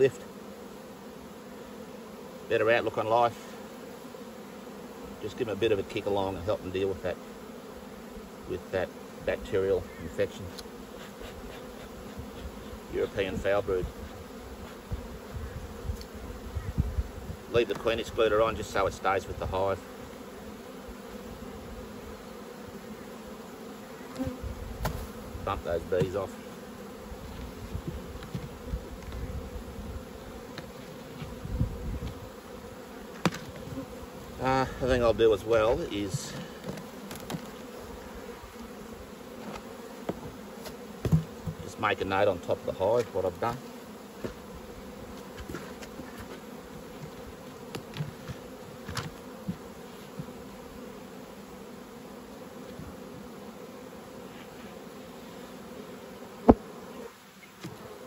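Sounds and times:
honeybees buzzing: 0.0 - 58.0
hive lid knocks: 24.1 - 25.3, 25.9 - 26.3, 27.3 - 29.3, 33.1 - 34.0, 35.6 - 37.7, 39.4 - 41.7, 45.1 - 50.5, 56.4 - 56.8.

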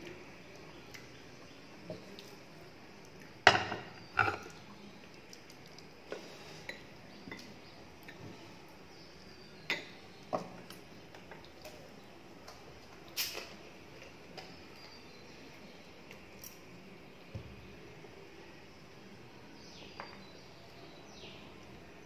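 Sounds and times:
plates and bowls clinking: 3.4 - 4.6.

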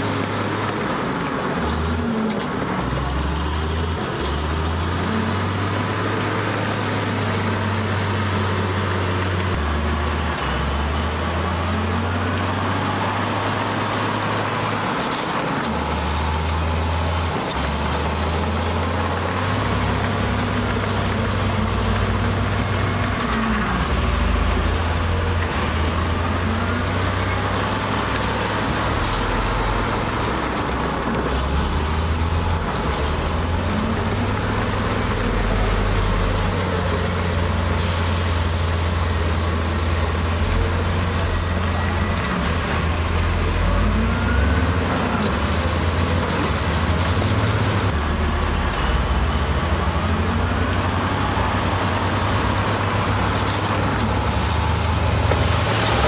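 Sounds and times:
heavy diesel engines running: 0.0 - 56.0
air brakes hissing: 37.7 - 39.0.

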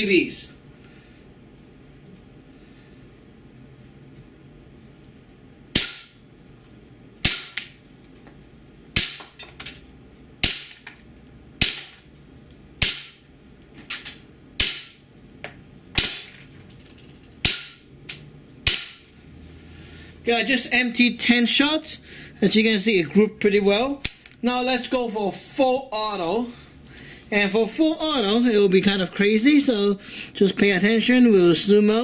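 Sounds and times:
airsoft pistol shots: 5.8 - 6.2.

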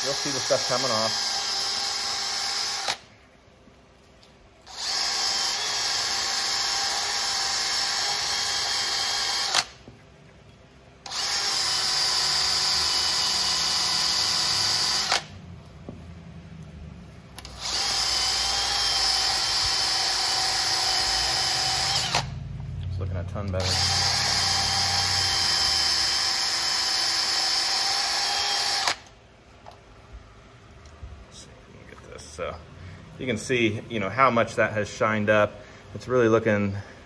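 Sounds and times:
drill with wire brush scrubbing metal: 0.0 - 3.1, 4.7 - 9.8, 11.0 - 15.3, 17.4 - 22.3, 23.5 - 29.1.

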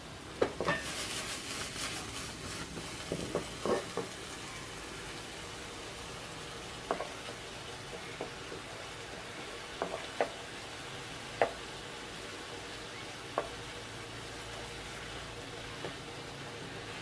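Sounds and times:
fish and onions sizzling in a pan: 0.0 - 17.0
utensil stirring onions: 0.2 - 17.0
utensil tapping a pan: 6.9 - 7.2, 9.8 - 10.4.

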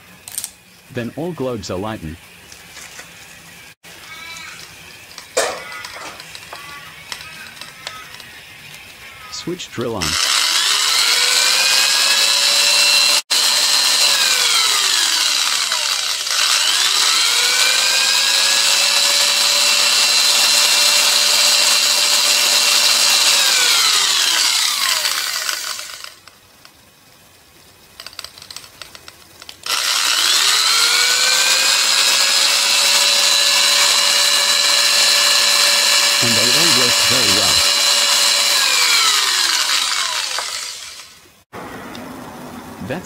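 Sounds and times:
electric drill whining: 10.0 - 26.3, 29.6 - 41.2.

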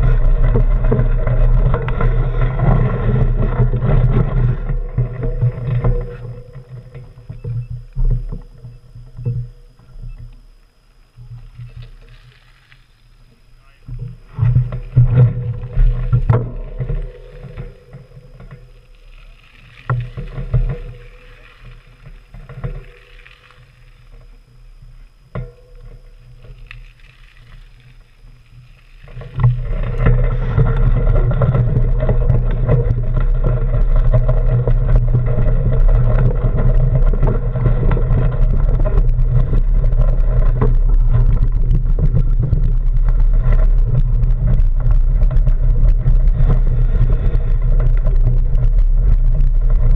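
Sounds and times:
bicycle knocks and crunches on gravel: 25.3 - 49.9.

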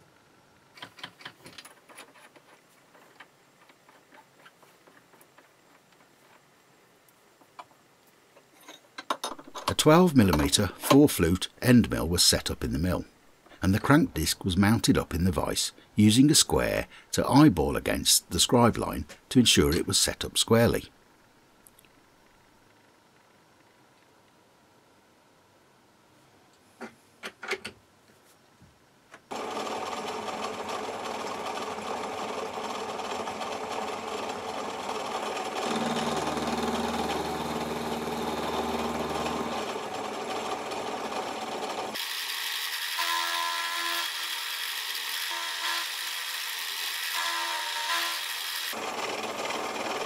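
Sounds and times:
milling machine cutting brass: 35.5 - 50.0.

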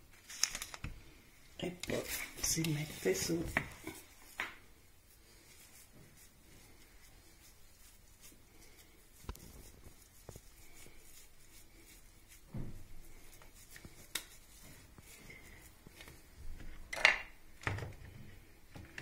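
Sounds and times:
soft food rustles: 0.0 - 16.9.

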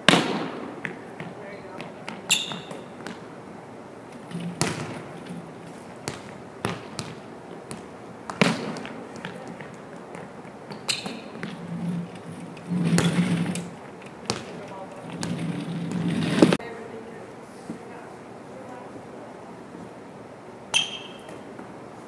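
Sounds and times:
volleyball bouncing on wooden floor: 0.0 - 3.3, 4.4 - 5.3, 6.0 - 11.7, 13.0 - 16.0
sneaker squeak: 2.1 - 3.2, 10.7 - 16.6, 20.7 - 21.6.

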